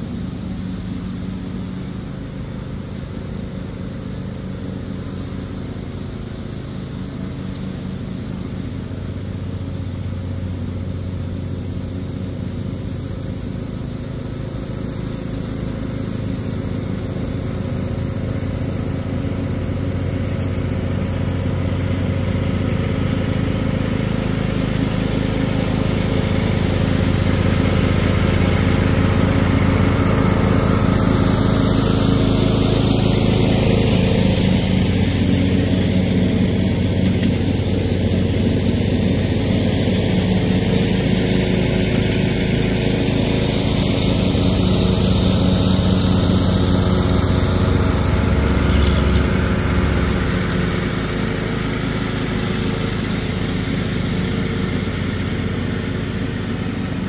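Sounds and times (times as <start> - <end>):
riding lawn mower engine: 0.0 - 57.0.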